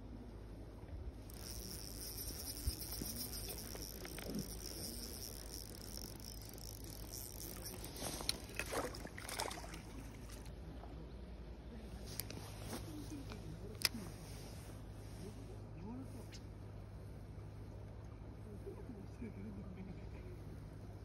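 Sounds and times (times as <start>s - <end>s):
fishing reel whirring: 1.2s - 9.1s
fish splashing: 1.3s - 10.5s.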